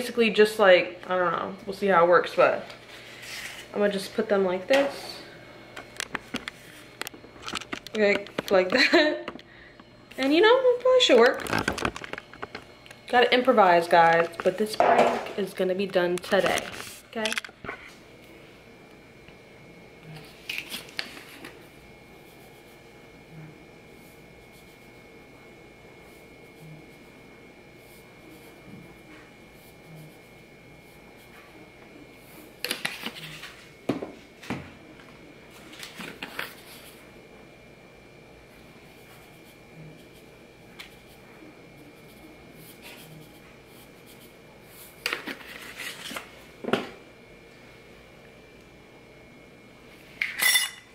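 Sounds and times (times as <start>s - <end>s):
paper and foil crinkling: 11.1s - 13.0s, 16.3s - 17.4s, 45.0s - 46.3s.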